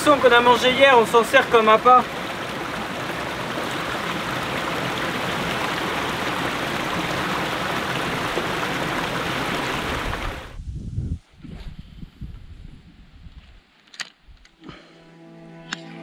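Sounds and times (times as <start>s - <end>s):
stream running over stones: 0.0s - 10.6s.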